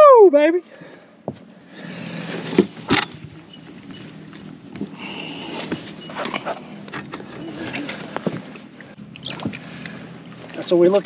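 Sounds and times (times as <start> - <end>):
steady low hum: 0.8 - 10.6
gear clicking and rattling: 2.0 - 8.3.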